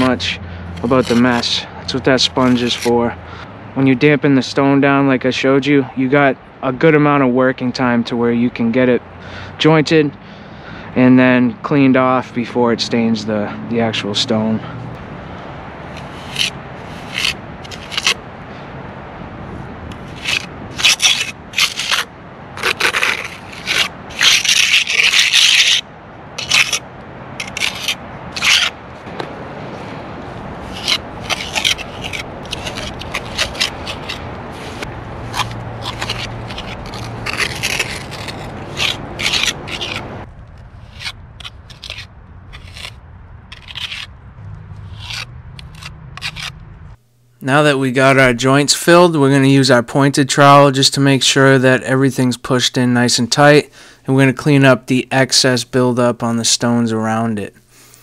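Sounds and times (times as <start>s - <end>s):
trowel scraping mortar: 0.0s - 3.1s, 15.9s - 18.2s, 20.0s - 25.8s, 26.4s - 26.8s, 27.4s - 29.3s, 30.6s - 40.1s, 40.8s - 44.1s, 44.8s - 46.6s.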